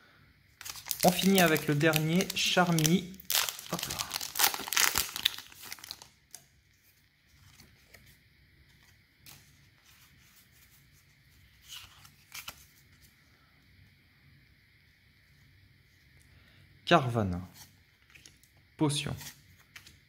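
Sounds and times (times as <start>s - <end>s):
trading cards rustling: 0.6s - 6.1s
foil wrapper tearing and crinkling: 0.6s - 6.4s.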